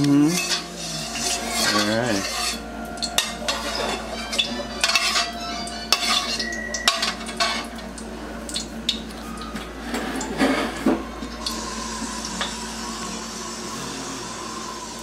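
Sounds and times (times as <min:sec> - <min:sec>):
metal utensils scraping a wok: 0:00.2 - 0:07.8.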